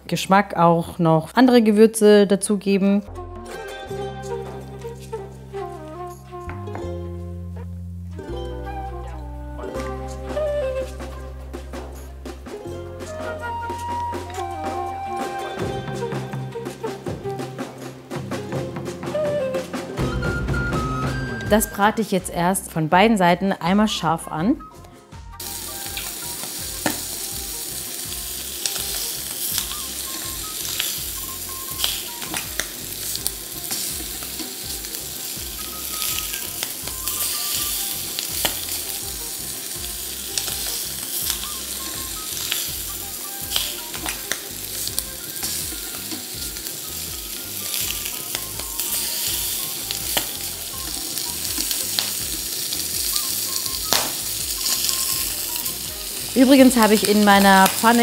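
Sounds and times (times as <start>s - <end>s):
chicken sizzling in a frying pan: 25.4s - 58.0s.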